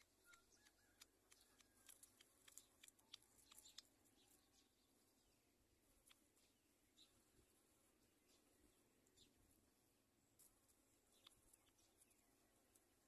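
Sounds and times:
twigs clicking and crackling: 0.0 - 4.4, 10.4 - 12.9
faint bird chick chirps: 0.0 - 5.5.

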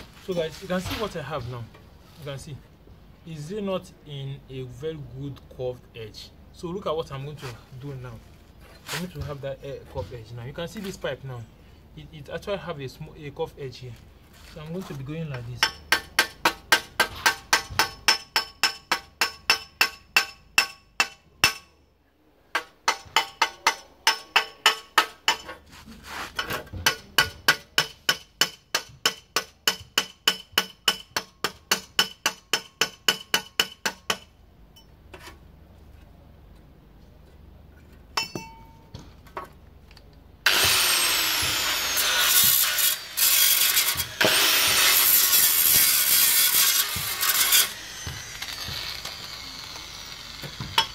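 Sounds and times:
hammer ringing on sheet steel: 38.2 - 38.8
angle grinder grinding metal: 40.5 - 50.9.

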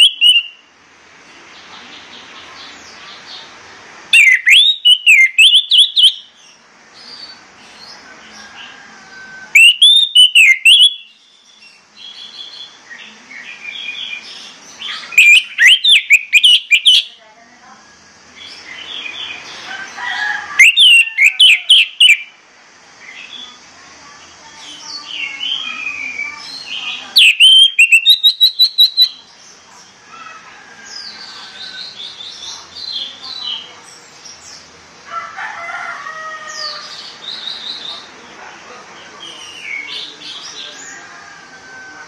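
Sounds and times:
thrush singing whistled phrases: 0.0 - 0.6, 4.1 - 6.3, 9.5 - 11.2, 15.0 - 17.1, 20.6 - 22.3, 27.1 - 29.3
rapid repeated bird notes: 0.0 - 8.0, 9.6 - 17.2, 20.6 - 22.4, 24.7 - 30.0.

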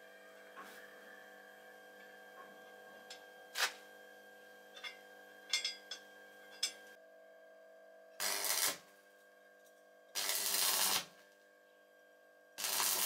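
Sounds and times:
arc welding crackle: 3.5 - 3.8, 8.2 - 8.9, 10.1 - 11.3, 12.6 - 13.0.

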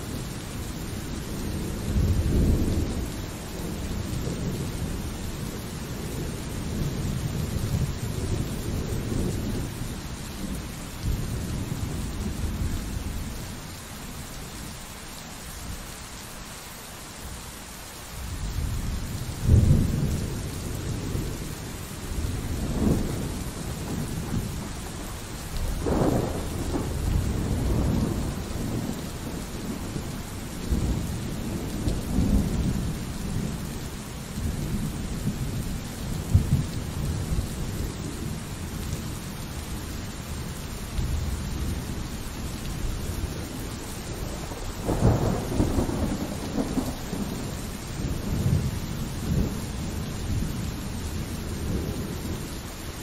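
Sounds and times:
steady pouring rain: 0.0 - 53.0
rolling thunder: 18.6 - 33.6, 34.4 - 39.0, 42.8 - 52.4
thunderclap: 25.6 - 29.9, 44.3 - 47.4.

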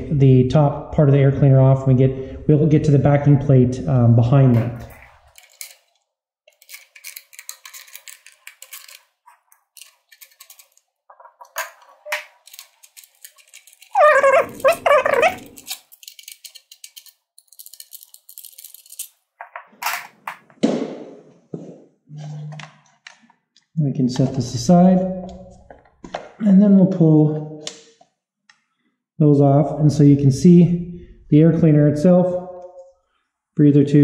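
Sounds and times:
wavering pitched call: 13.9 - 15.6.

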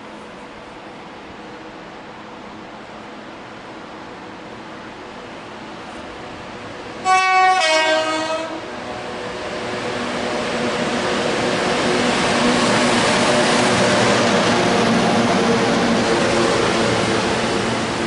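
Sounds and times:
train running noise and hum: 0.0 - 18.0
two-tone locomotive horn: 7.0 - 8.7.

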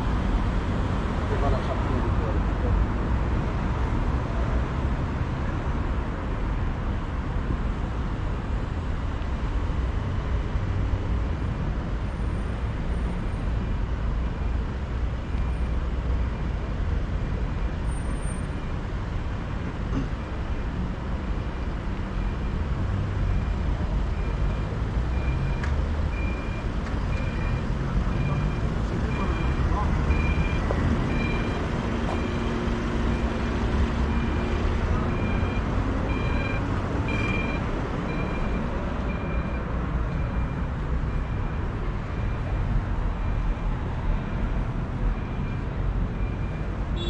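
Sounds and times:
city street traffic: 0.0 - 47.0
pedestrian crossing signal beeps: 22.0 - 47.0.

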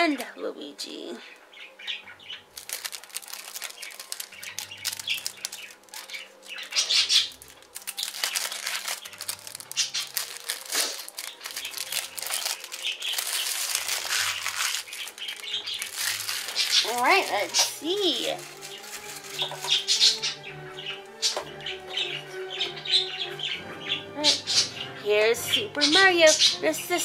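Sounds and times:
plastic wrapping crinkling: 2.5 - 20.4.

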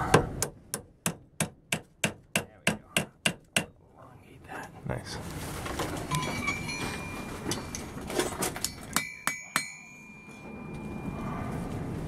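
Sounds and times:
hammer ringing on anvil: 8.6 - 11.2.

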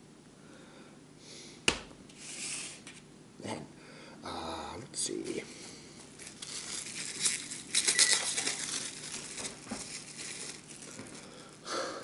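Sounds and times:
plastic wrapper crinkling and tearing: 6.0 - 11.6.

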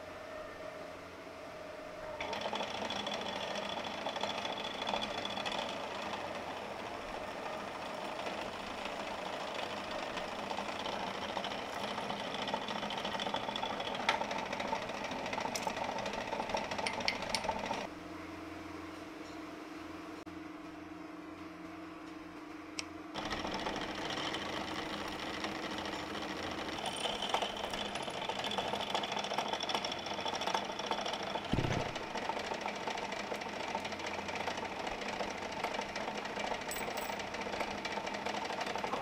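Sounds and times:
drill bit grinding metal: 2.2 - 17.8, 23.2 - 31.6
drill press motor hum: 2.2 - 17.9, 23.2 - 39.0
low thud: 31.5 - 32.0.

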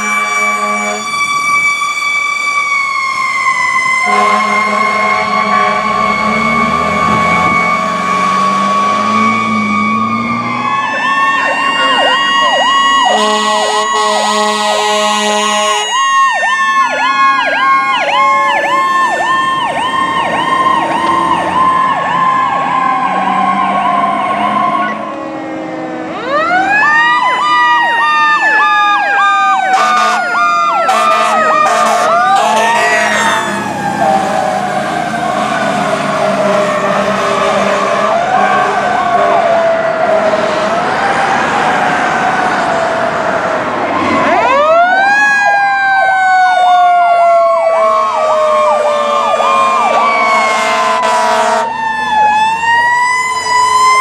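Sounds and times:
air horn blasts: 0.0 - 1.1, 4.0 - 6.1, 13.1 - 16.0, 29.7 - 33.6, 49.8 - 51.7
fire truck sirens wailing: 0.0 - 54.0.

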